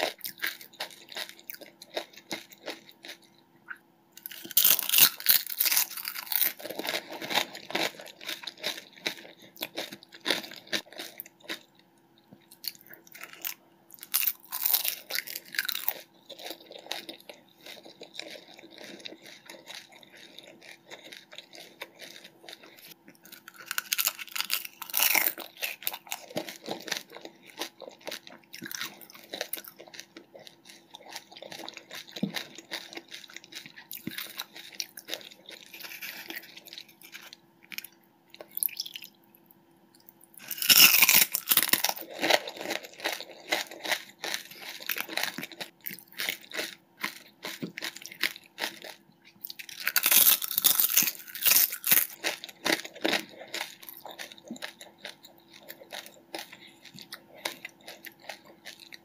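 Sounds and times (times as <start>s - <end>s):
fried puris crunching: 0.0s - 39.2s, 40.0s - 59.0s
faint steady hum: 0.0s - 59.0s
wet chewing: 40.0s - 59.0s.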